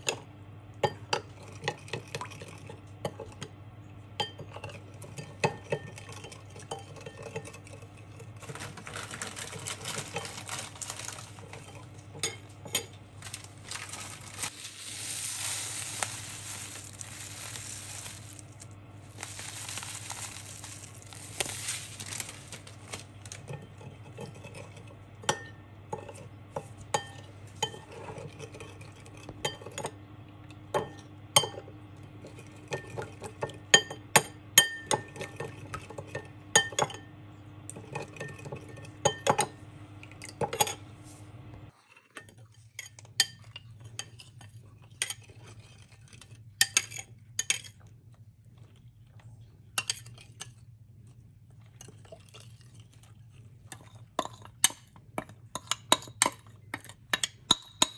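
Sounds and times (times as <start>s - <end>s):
metal spoon clinking in ceramic bowl: 54.2s - 57.9s.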